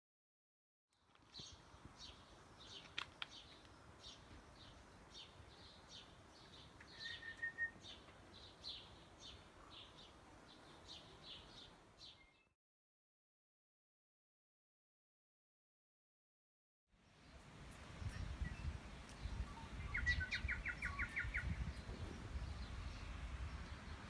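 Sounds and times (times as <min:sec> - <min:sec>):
bird chirping: 0:01.3 - 0:12.5, 0:17.0 - 0:24.0.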